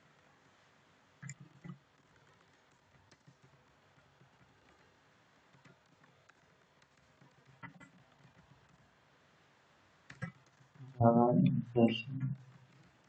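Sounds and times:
computer keyboard clicks: 0:02.7 - 0:04.8, 0:10.1 - 0:10.5.

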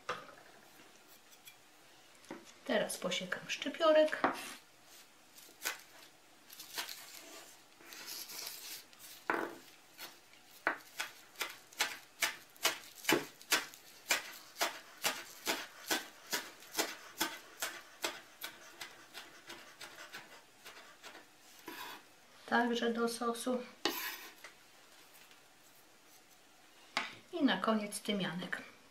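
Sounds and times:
rustling: 0:04.4 - 0:17.8
knife chopping on wooden board: 0:09.3 - 0:20.8.

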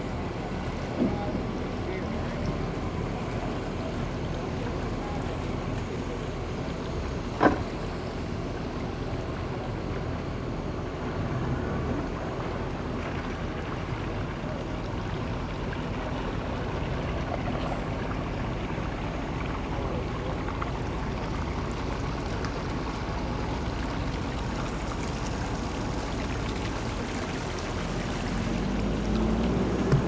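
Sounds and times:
boat engine idling: 0:00.0 - 0:30.0
water washing: 0:10.8 - 0:30.0.

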